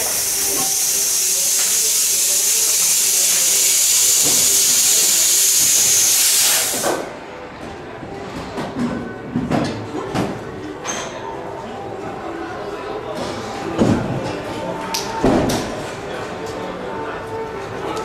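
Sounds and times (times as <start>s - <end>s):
loud steady hiss: 0.0s - 7.0s.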